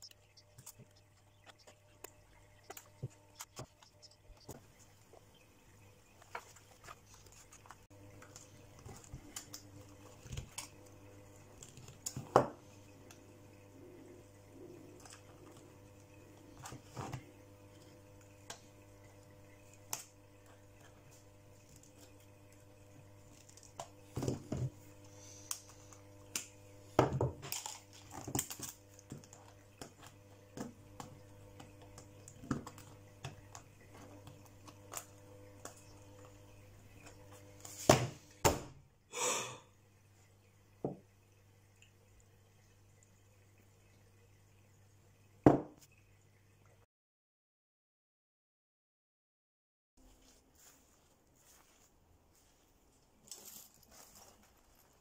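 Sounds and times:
rustling scrape: 0:50.0 - 0:55.0.

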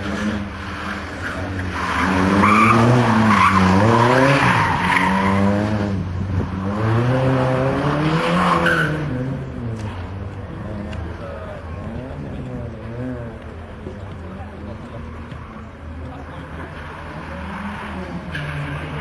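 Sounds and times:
race car engine revving: 0:00.0 - 0:19.0
tyres squealing: 0:00.8 - 0:05.6.

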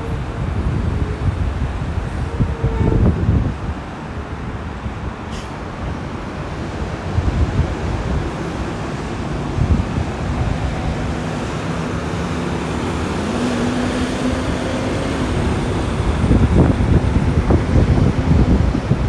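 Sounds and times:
freeway traffic: 0:00.0 - 0:19.0
truck passing close: 0:05.0 - 0:19.0.

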